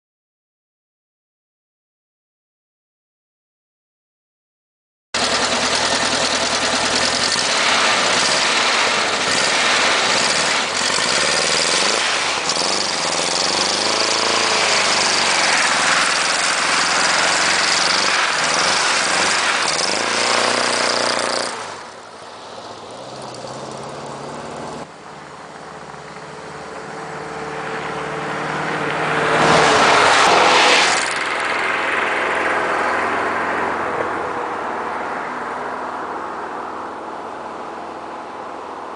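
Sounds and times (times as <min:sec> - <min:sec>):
engine revving hard: 0:05.2 - 0:22.0, 0:28.2 - 0:32.8.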